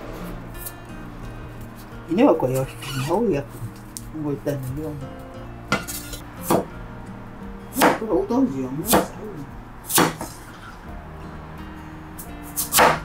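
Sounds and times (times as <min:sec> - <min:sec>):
background music with steady tones: 0:00.0 - 0:13.0
cleaver chopping on wooden board: 0:05.7 - 0:06.7, 0:07.8 - 0:08.0, 0:08.9 - 0:09.2, 0:09.9 - 0:10.4, 0:12.6 - 0:13.0.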